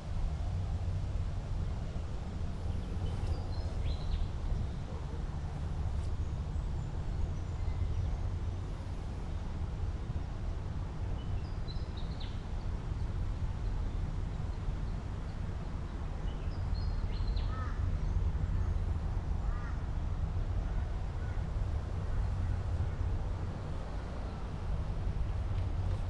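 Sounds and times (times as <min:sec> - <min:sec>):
steady low rumble: 0:18.3 - 0:26.0.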